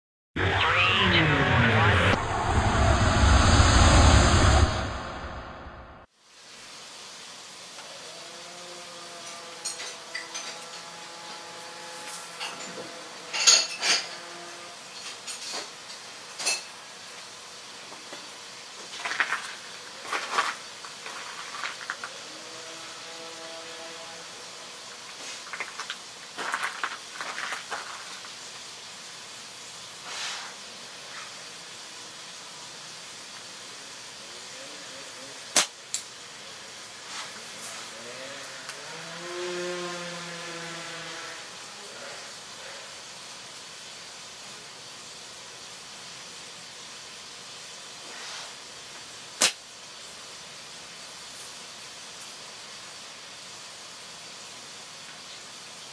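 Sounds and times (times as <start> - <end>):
steady background hiss: 15.0 - 38.8, 39.6 - 55.9
slingshot bands snapping: 49.4 - 49.6.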